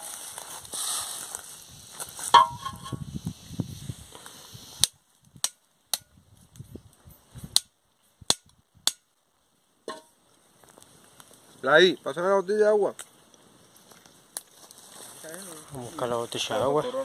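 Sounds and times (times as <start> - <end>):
campfire crackling and popping: 0.0 - 16.5
light rustle: 10.1 - 11.7, 12.9 - 16.5.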